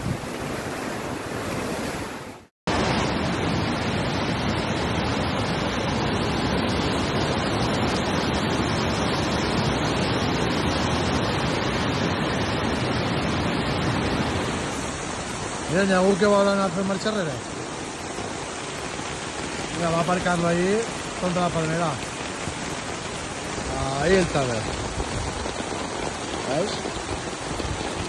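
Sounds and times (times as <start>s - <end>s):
wind buffeting microphone: 0.0s - 2.3s, 22.5s - 28.0s
floodwater rushing: 0.0s - 28.0s.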